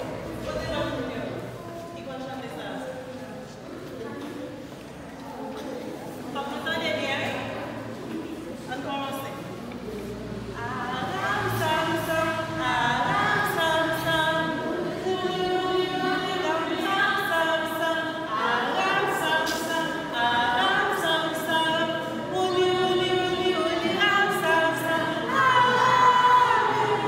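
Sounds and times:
children singing unaccompanied: 0:10.5 - 0:27.0.

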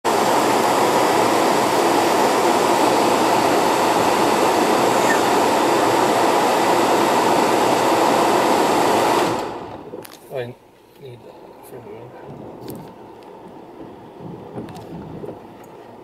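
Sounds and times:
heavy rain on a car roof: 0:00.1 - 0:05.1, 0:12.2 - 0:16.0.

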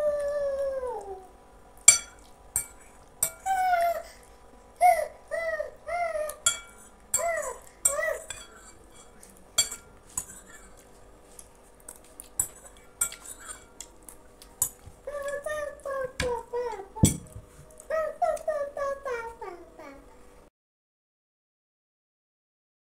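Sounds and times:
metal spoon scraping glass bowl: 0:01.9 - 0:03.4, 0:06.4 - 0:10.8, 0:12.4 - 0:13.9.

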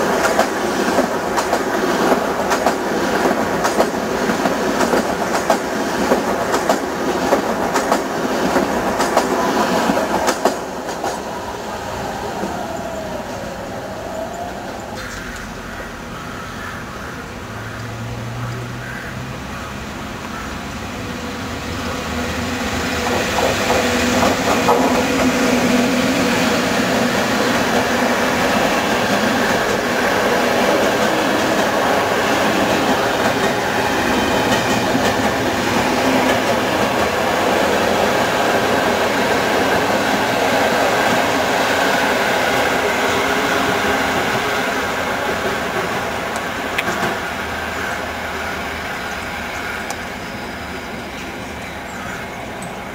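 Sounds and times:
train wheels clattering on rails: 0:00.0 - 0:11.4, 0:22.1 - 0:50.2
electric locomotive hum: 0:00.0 - 0:52.9.

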